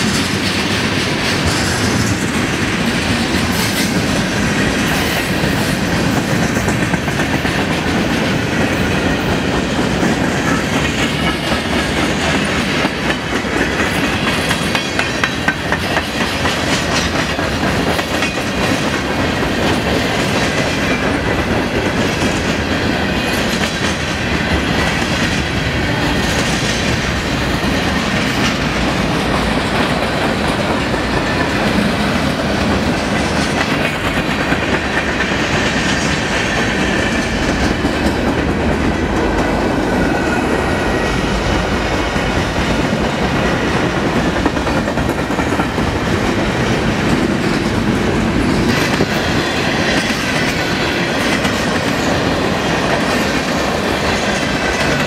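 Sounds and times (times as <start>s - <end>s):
train wheels rumbling on rails: 0.0s - 55.0s
wheels clicking over rail joints: 0.0s - 55.0s.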